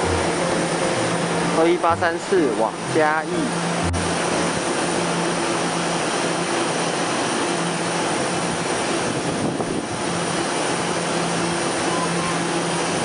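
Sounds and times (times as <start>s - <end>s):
low hum: 0.0s - 7.0s.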